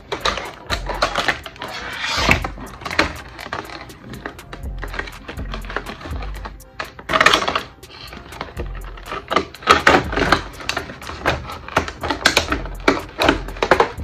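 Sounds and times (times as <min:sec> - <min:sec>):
plastic packaging crackling and clicking: 0:00.0 - 0:14.0.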